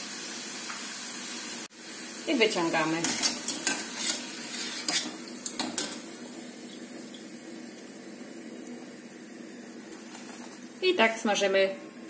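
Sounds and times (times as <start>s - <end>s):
oil sizzling: 0.0s - 12.0s.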